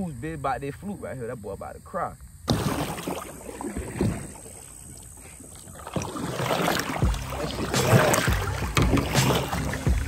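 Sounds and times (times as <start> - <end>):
paddle strokes splashing water: 2.4 - 10.0
low thumps: 7.0 - 10.0.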